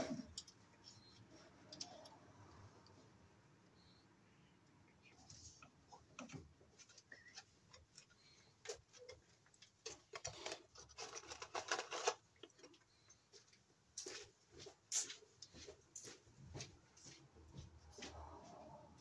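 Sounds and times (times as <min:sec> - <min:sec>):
clicks taps and rustles: 0:05.2 - 0:16.0.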